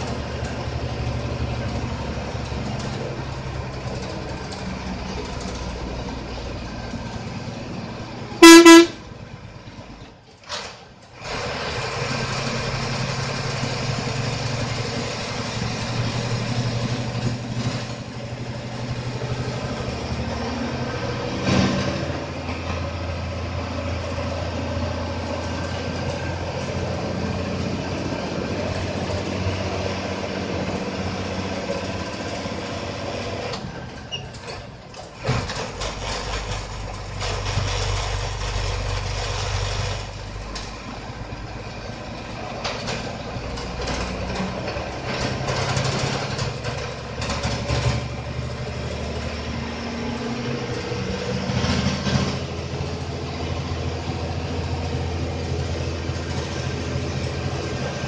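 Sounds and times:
bus engine running: 0:00.0 - 0:58.0
road noise: 0:00.0 - 0:58.0
loud horn blast: 0:08.4 - 0:09.1.

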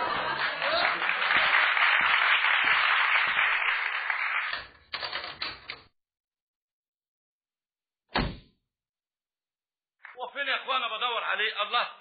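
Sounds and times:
audience applause: 0:00.0 - 0:04.8.

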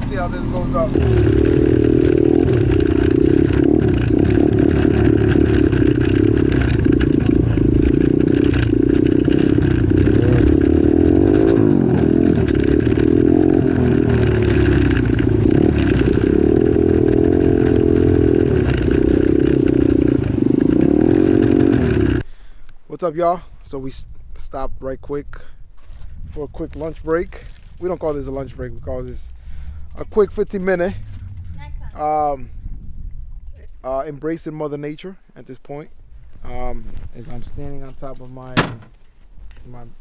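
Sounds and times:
off-road vehicle engine revving: 0:00.0 - 0:22.3.

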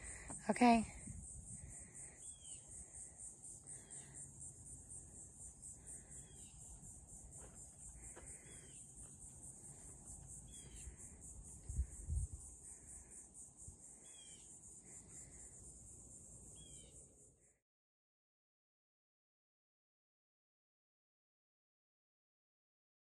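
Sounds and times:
insect chorus pulsing: 0:00.0 - 0:17.5.

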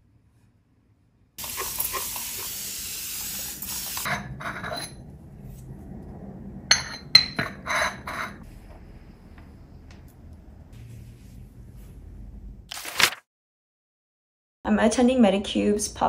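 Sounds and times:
spray mister hissing: 0:01.4 - 0:04.1.

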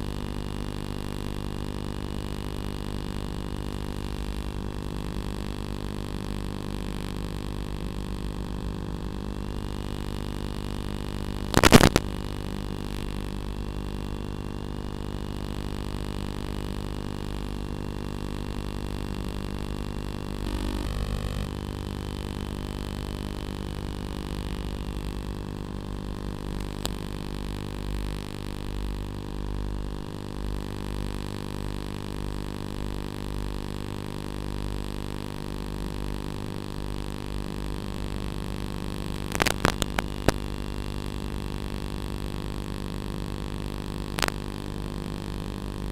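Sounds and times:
loud crackle burst: 0:11.4 - 0:12.3, 0:39.2 - 0:40.6, 0:44.1 - 0:44.6.

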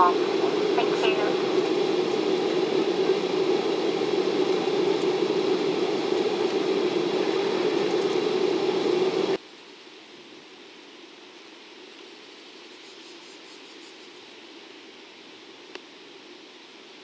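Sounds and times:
jet cabin engine drone: 0:00.0 - 0:09.4.

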